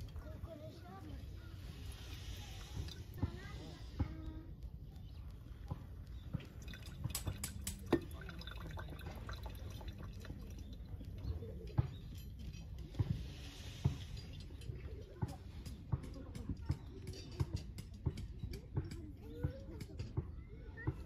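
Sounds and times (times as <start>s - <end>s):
water trickling and dripping: 1.9s - 13.2s
water pouring from kettle: 6.4s - 11.2s.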